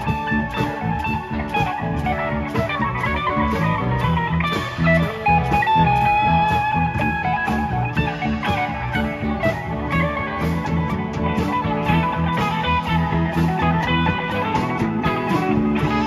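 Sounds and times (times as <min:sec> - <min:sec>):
electric guitar lines: 0:00.0 - 0:16.0
rock band playing: 0:00.0 - 0:16.0.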